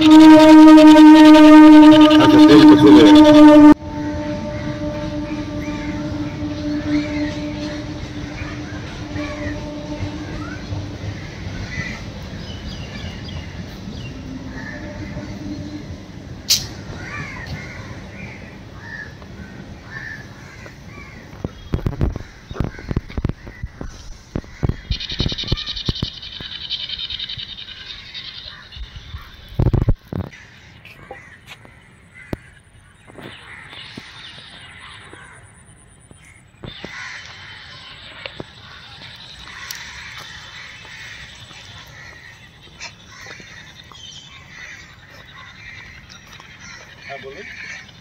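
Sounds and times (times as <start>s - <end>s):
thin high whine: 0.0s - 11.0s
crows cawing: 8.1s - 12.1s, 16.9s - 21.3s, 30.3s - 32.6s, 33.4s - 35.5s, 36.2s - 37.7s, 38.6s - 47.9s.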